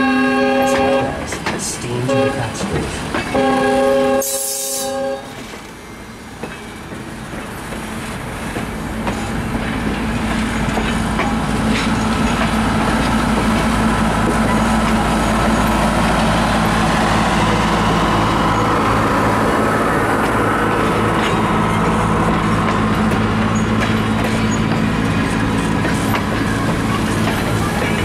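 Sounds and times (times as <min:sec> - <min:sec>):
train horn: 0:00.0 - 0:01.2, 0:02.0 - 0:02.6, 0:03.3 - 0:05.4
diesel locomotive engine: 0:00.0 - 0:28.0
train wheel clicks: 0:00.6 - 0:03.5, 0:06.3 - 0:17.0, 0:19.2 - 0:28.0.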